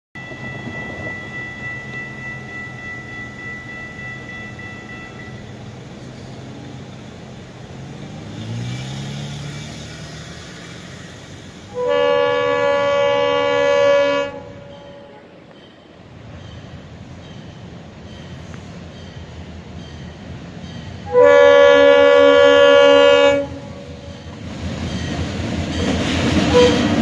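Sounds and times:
diesel locomotive engine: 0.2 - 27.0
train rumble: 0.2 - 27.0
train air horn blast: 11.7 - 15.4, 21.1 - 24.1, 26.5 - 27.0.

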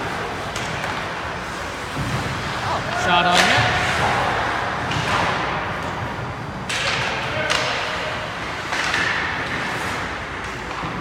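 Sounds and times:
hockey sticks striking puck: 0.0 - 11.0
skate blades scraping ice: 7.9 - 11.0.

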